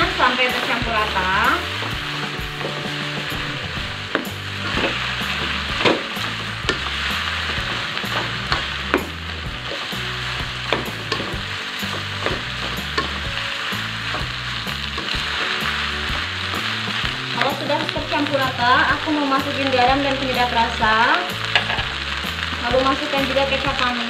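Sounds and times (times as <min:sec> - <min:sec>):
rice sizzling in oil: 0:00.0 - 0:24.0
spatula scraping and tapping pan: 0:04.1 - 0:17.9, 0:21.4 - 0:22.0.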